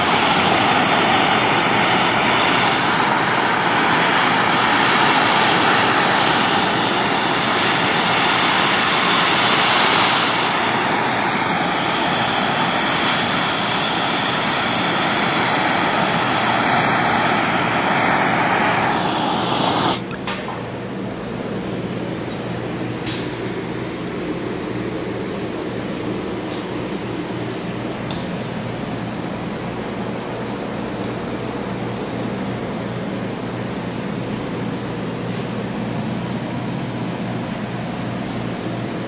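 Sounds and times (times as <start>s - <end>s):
gas torch flame hissing: 0.0s - 20.2s.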